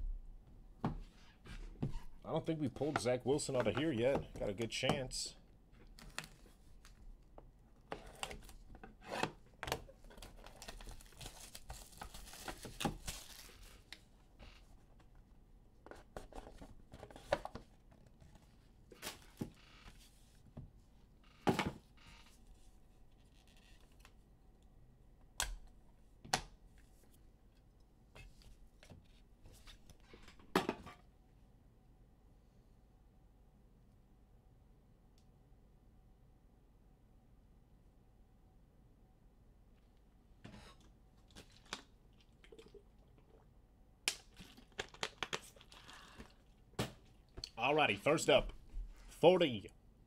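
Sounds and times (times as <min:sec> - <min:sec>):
shrink-wrap crinkling and tearing: 0:10.1 - 0:13.9, 0:44.2 - 0:46.6.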